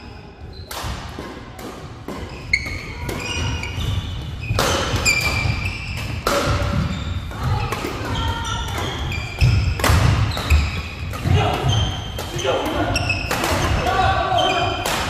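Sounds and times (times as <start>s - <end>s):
racket hitting shuttlecock: 0.6s - 13.9s, 14.7s - 15.0s
shoe squeaks on court: 2.2s - 11.0s.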